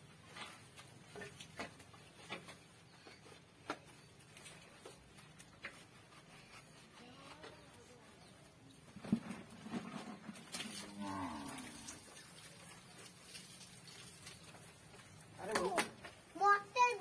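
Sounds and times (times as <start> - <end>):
water dripping and tapping: 10.3 - 16.3.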